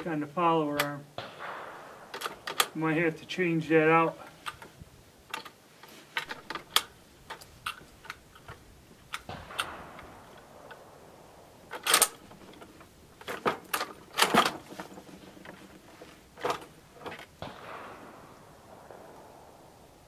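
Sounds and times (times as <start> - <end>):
rifle bolt clicking and clacking: 2.1 - 2.8, 5.3 - 5.6, 6.2 - 10.8, 11.7 - 15.6.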